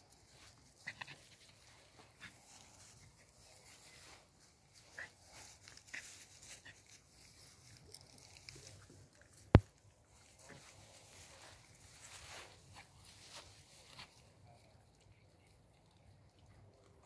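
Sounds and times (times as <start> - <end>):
dogs rustling through grass: 0.0 - 9.5, 10.1 - 14.2.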